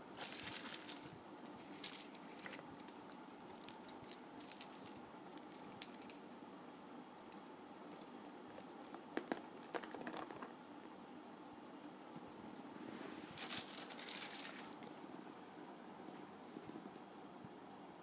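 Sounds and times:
metal charm jingling and clinking: 0:00.1 - 0:06.2.

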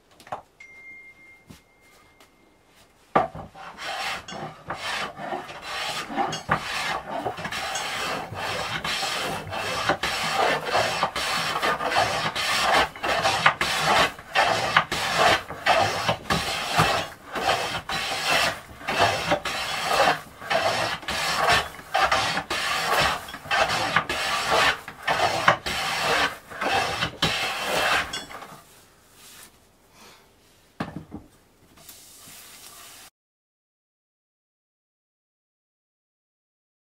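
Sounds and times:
hand plane rasping strokes: 0:03.2 - 0:28.5.

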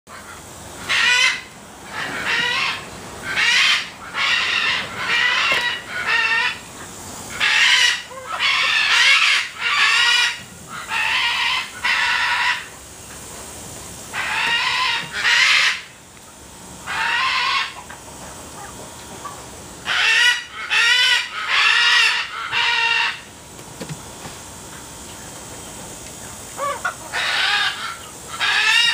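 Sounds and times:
junglefowl calling: 0:00.1 - 0:13.2, 0:14.1 - 0:16.0, 0:16.8 - 0:23.3, 0:26.3 - 0:28.9.

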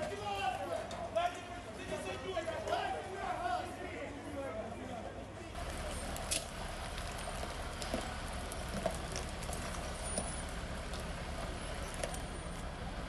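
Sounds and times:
fire engine rumbling: 0:05.6 - 0:13.0.

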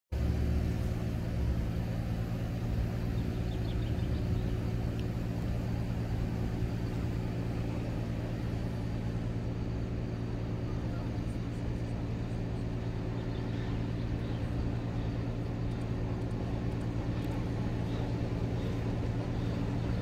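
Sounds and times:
engine idling: 0:00.1 - 0:20.0.

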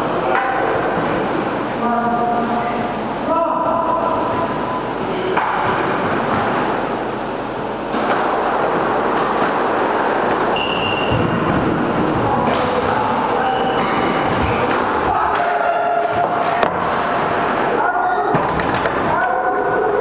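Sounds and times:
squash ball and racket thuds: 0:07.9 - 0:17.2
sneaker squeaks: 0:10.5 - 0:11.4, 0:13.3 - 0:14.7.

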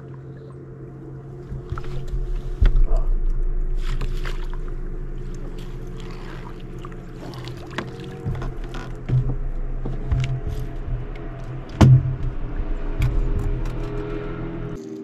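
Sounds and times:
steady low hum: 0:00.0 - 0:14.8
loud thump: 0:08.3 - 0:13.8.

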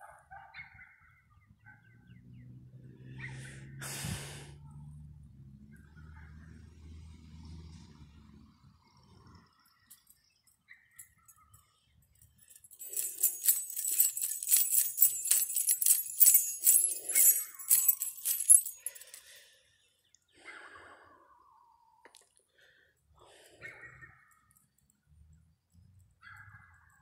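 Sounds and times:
small metal pieces jingling: 0:12.1 - 0:19.4.

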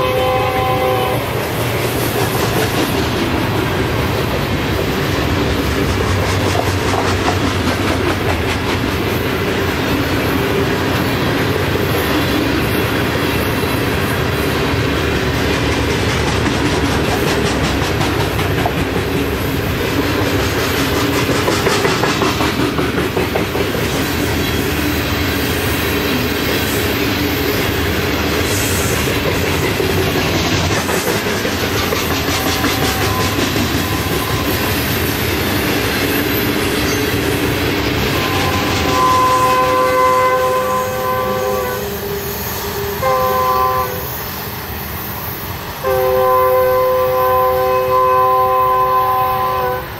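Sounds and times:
clickety-clack of rail joints: 0:00.0 - 0:41.8
steel wheels rumbling on rail: 0:00.0 - 0:49.9.

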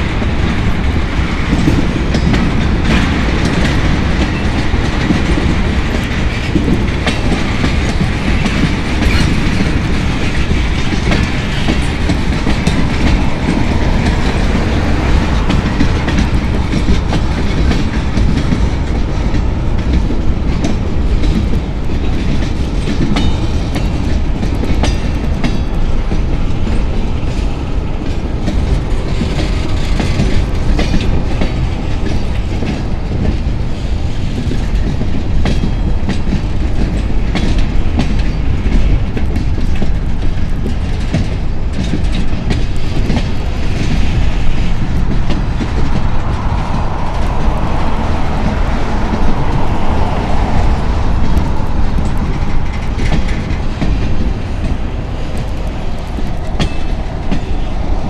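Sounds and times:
freight train rumbling past: 0:00.0 - 0:58.0
steel wheels clicking on rails: 0:00.0 - 0:58.0.

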